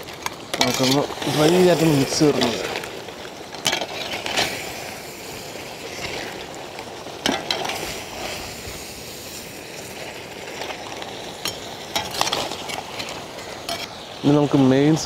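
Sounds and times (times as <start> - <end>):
crabs sizzling in pan: 0.0 - 15.0
metal spatula scraping pan: 0.5 - 2.9.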